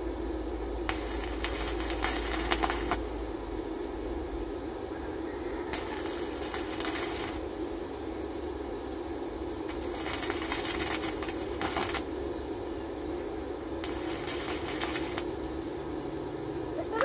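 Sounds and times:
steady hum: 0.0s - 17.0s
welding arc crackling: 0.8s - 3.9s, 5.7s - 17.0s.

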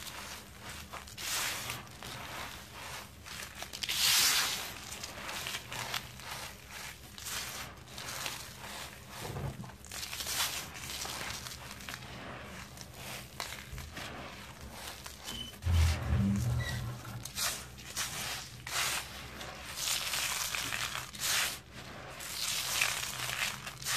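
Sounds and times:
low steady hum: 15.4s - 17.3s
hands crushing sand and cement: 17.2s - 23.9s.

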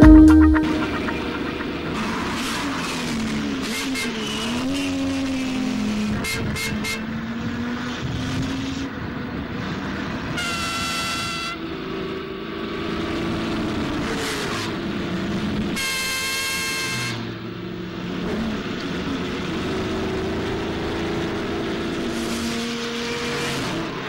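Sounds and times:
long horn blast: 0.0s - 2.4s
car horn toots: 10.4s - 11.6s, 15.8s - 17.3s
car engines running: 17.3s - 24.0s.

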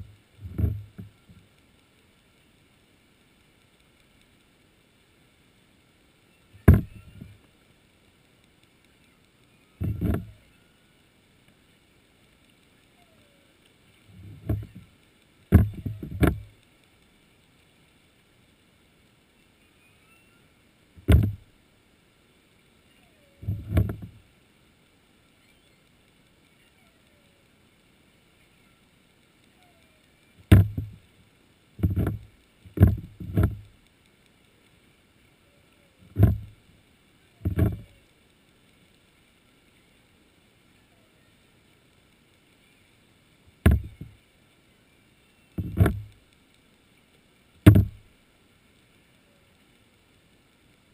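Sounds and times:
muffled underwater knocking: 6.6s - 7.3s, 14.2s - 14.8s, 15.5s - 16.5s, 21.0s - 21.4s, 30.5s - 31.0s, 31.8s - 33.6s, 37.4s - 37.9s, 43.6s - 44.1s, 45.6s - 46.1s, 47.7s - 48.0s.

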